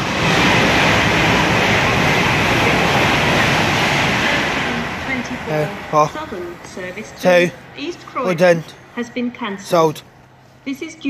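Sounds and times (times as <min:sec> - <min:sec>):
train wheels and air rush: 0:00.0 - 0:07.8
electric train passing: 0:00.0 - 0:11.0.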